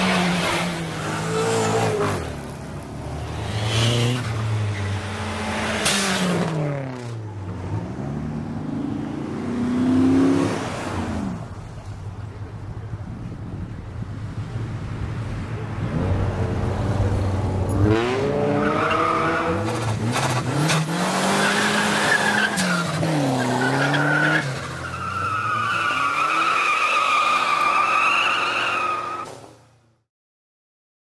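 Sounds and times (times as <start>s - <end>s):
car engine revving: 0.0s - 11.6s, 14.2s - 26.4s
tires squealing: 15.8s - 29.6s.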